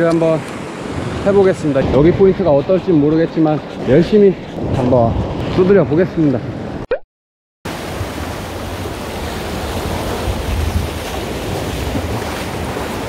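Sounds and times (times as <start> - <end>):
wind buffeting microphone: 0.0 - 6.8, 7.9 - 13.0
sea waves washing against rocks: 7.7 - 13.0.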